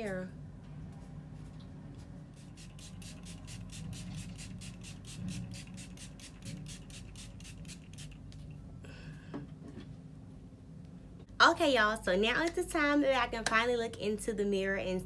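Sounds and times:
mascara wand brushing strokes: 2.0 - 8.2.

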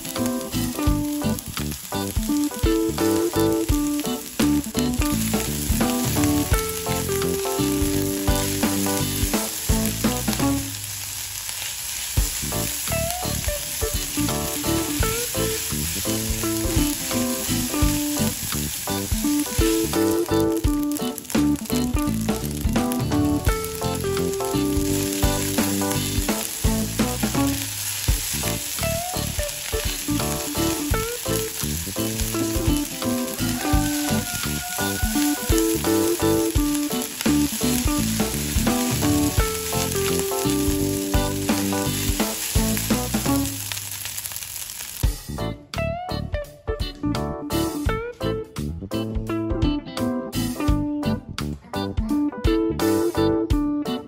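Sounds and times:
background music: 0.0 - 10.8, 12.3 - 43.6, 45.1 - 54.0
rice sizzling in frying pan: 0.0 - 45.4.

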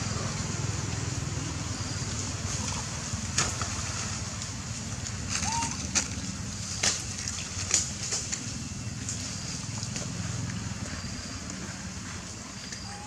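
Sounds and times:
steady low rumble: 0.0 - 12.9
small splashes in water: 2.5 - 10.8
branches snapping: 5.3 - 8.5.

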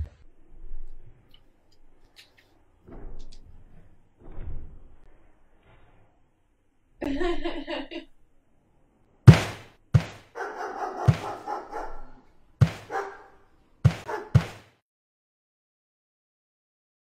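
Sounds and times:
sharp knocks and thuds: 2.8 - 3.4, 4.2 - 5.0, 9.3 - 10.4, 11.0 - 11.5, 12.6 - 13.0, 13.8 - 14.8.

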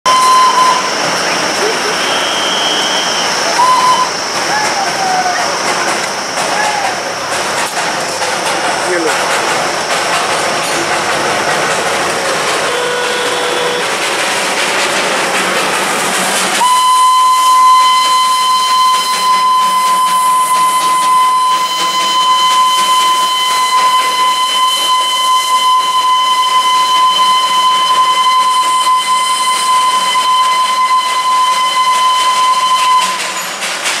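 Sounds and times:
steam locomotive whistle: 0.0 - 1.0, 1.6 - 5.6, 12.6 - 14.0, 16.6 - 33.6
steam hissing: 0.1 - 34.0.

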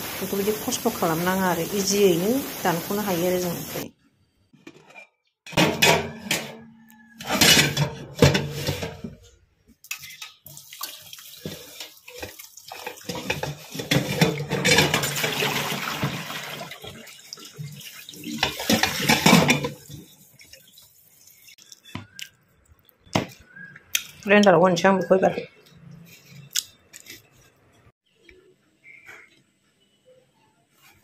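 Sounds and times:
tap water running into a pot: 9.9 - 21.6.

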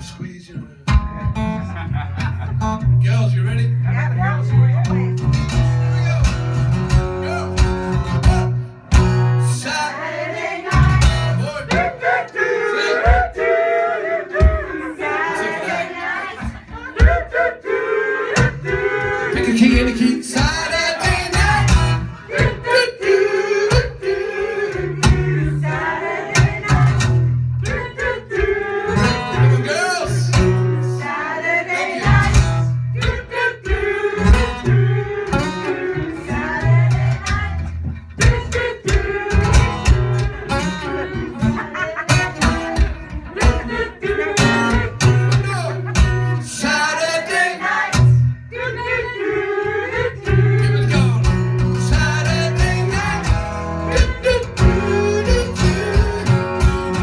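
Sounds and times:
acoustic guitar: 0.0 - 57.0
man singing: 19.3 - 24.2, 45.2 - 47.6, 50.6 - 56.6.

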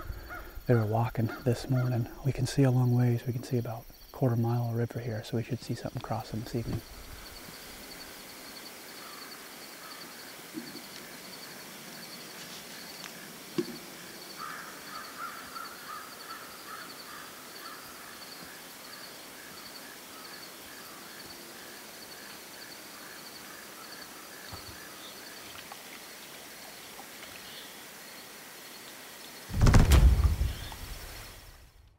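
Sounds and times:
insects chirping: 0.0 - 31.9
bird calling: 9.0 - 11.2, 14.4 - 18.7, 30.0 - 31.5.

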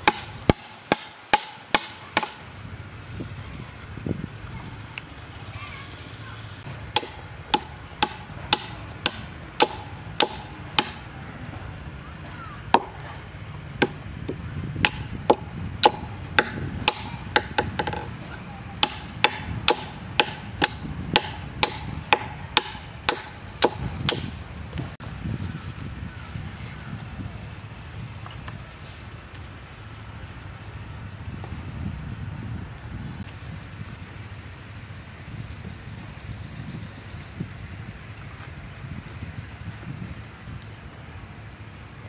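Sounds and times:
hatchet chopping wood: 0.0 - 2.4, 6.9 - 11.1, 12.7 - 13.2, 13.8 - 18.1, 18.8 - 24.4.

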